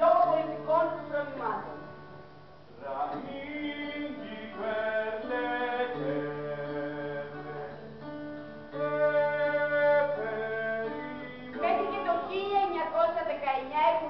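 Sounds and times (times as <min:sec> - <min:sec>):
acoustic guitar: 0:00.0 - 0:14.0
person singing long notes: 0:02.7 - 0:08.0, 0:08.7 - 0:12.4.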